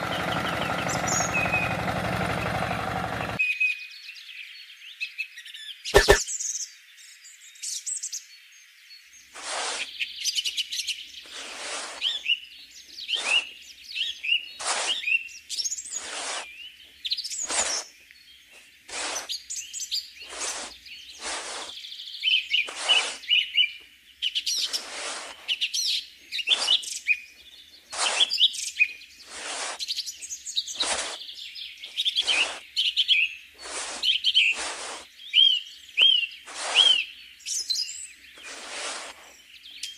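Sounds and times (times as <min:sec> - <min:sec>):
birds chirping and singing: 0:00.0 - 0:11.4, 0:12.0 - 0:39.9
sharp click: 0:06.0 - 0:06.2
trowel scooping sand: 0:06.0 - 0:06.2, 0:09.4 - 0:10.0, 0:11.2 - 0:12.4, 0:13.1 - 0:13.5, 0:14.5 - 0:16.6, 0:17.4 - 0:17.9, 0:18.9 - 0:21.8, 0:22.6 - 0:23.4, 0:24.6 - 0:25.6, 0:26.5 - 0:27.0, 0:27.9 - 0:31.3, 0:31.9 - 0:32.7, 0:33.6 - 0:35.2, 0:36.4 - 0:37.1, 0:38.4 - 0:39.4.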